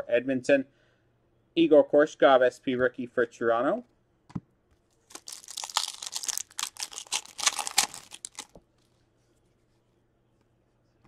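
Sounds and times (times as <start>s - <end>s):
foil wrapper crinkling and tearing: 5.0s - 8.6s.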